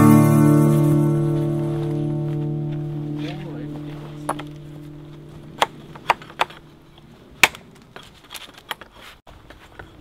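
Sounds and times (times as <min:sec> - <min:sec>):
knife chopping wood: 0:07.4 - 0:07.7.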